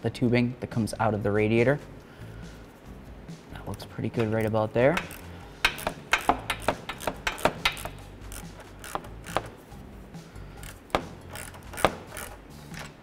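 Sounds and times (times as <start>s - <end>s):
metal hose clamp clicking: 3.7s - 9.6s, 10.6s - 13.0s.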